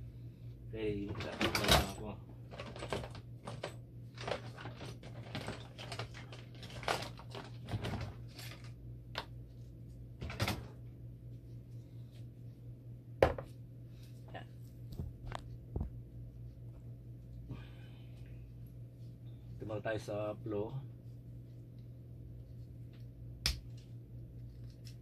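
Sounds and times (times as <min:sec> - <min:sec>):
metal tools clattering in drawer: 0:01.1 - 0:08.7
low hum: 0:08.2 - 0:25.0.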